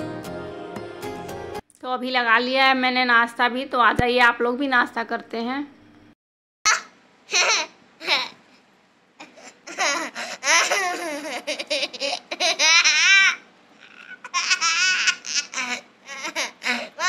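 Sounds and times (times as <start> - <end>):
boy giggling: 6.7 - 8.4, 9.2 - 17.0.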